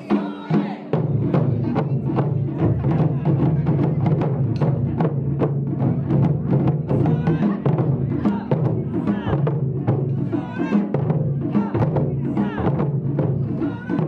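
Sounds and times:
taiko drums drumming: 0.0s - 14.0s.

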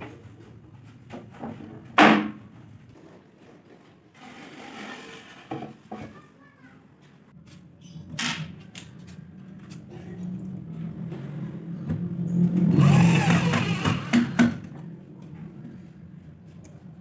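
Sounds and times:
cordless drill whirring: 12.7s - 14.4s.

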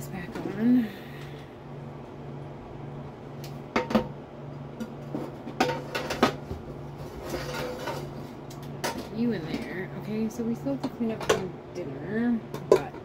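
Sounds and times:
steady low hum: 0.0s - 13.0s
metal pots clinking: 4.8s - 6.4s, 12.5s - 13.0s.

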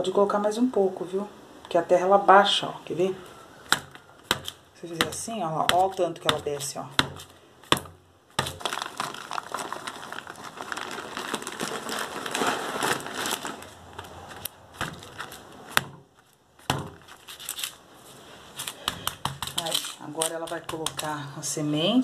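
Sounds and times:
sharp knocks: 3.7s - 8.6s, 15.7s - 17.1s
crinkly crackling of soil and packaging: 8.3s - 22.0s.

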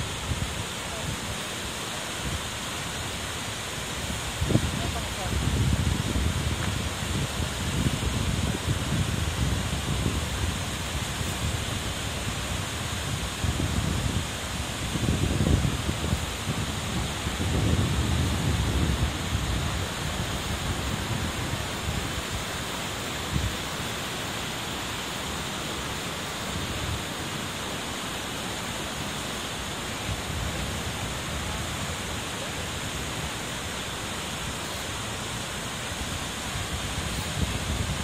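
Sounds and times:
river rushing over rapids: 0.0s - 38.0s.

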